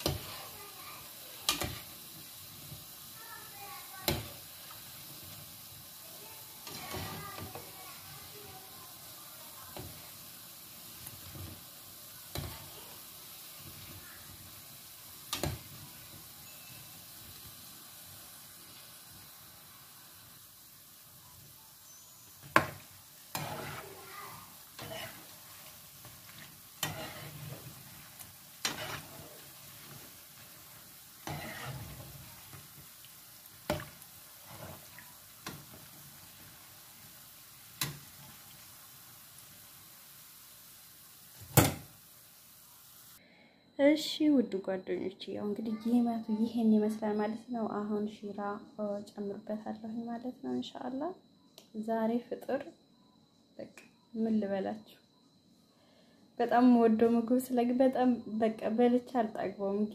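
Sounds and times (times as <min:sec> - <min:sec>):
dough deep-frying in hot oil: 0:00.0 - 0:43.2.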